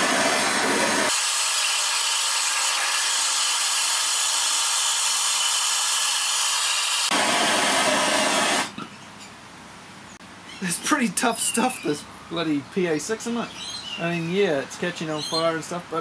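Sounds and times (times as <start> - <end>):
blowtorch flame hissing: 0.0 - 8.8.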